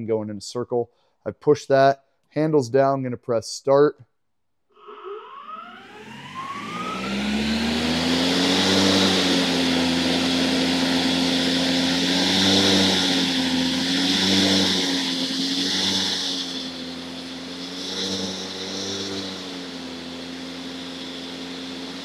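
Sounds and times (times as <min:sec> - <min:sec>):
electric lawn mower whining: 0:04.8 - 0:22.0
rush of air: 0:06.7 - 0:22.0.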